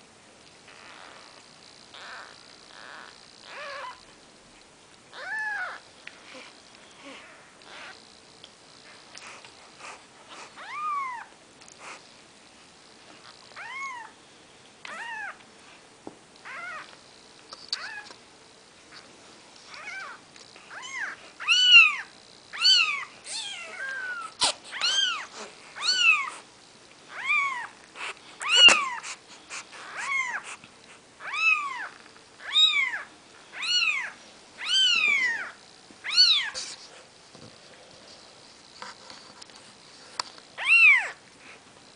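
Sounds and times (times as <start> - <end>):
kittens mewing: 1.9 - 4.0, 19.8 - 26.5, 27.1 - 30.6.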